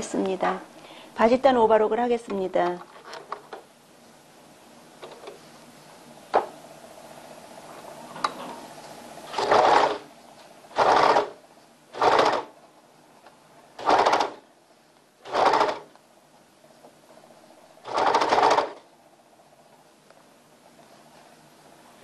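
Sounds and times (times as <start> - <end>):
serger machine stitching: 9.2 - 12.6, 13.8 - 14.5, 15.2 - 16.0, 17.8 - 18.9.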